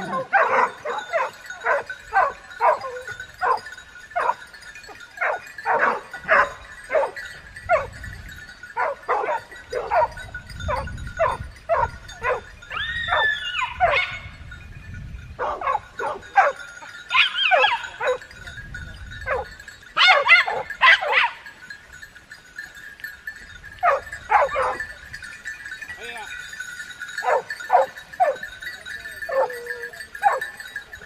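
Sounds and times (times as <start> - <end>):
dogs barking and yelping: 0.0 - 14.4, 15.4 - 18.4, 19.2 - 21.6, 23.8 - 25.1, 27.0 - 30.8.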